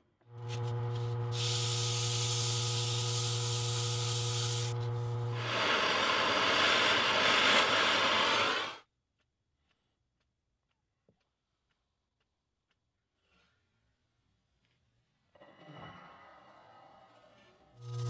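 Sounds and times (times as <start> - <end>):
lathe motor humming: 0.3 - 8.7.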